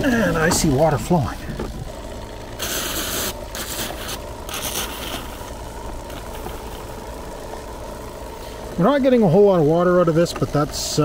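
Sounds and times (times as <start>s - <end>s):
electric pump humming: 0.0s - 11.0s
short hissing bursts: 2.6s - 5.5s.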